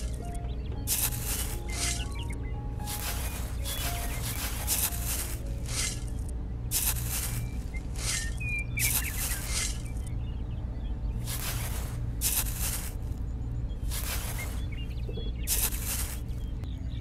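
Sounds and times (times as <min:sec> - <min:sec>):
low steady hum: 0:00.0 - 0:17.0
trowel scraping sand: 0:02.9 - 0:10.0, 0:11.2 - 0:13.0.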